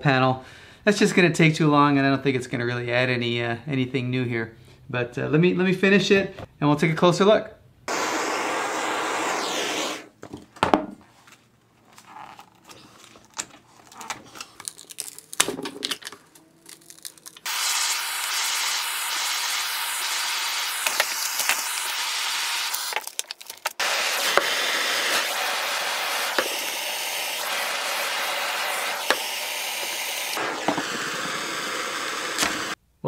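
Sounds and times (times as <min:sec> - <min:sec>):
heat gun blowing: 0:07.9 - 0:10.1, 0:17.4 - 0:23.0, 0:23.8 - 0:32.8
plastic sheet crackling and tearing: 0:12.0 - 0:17.5, 0:22.8 - 0:23.8.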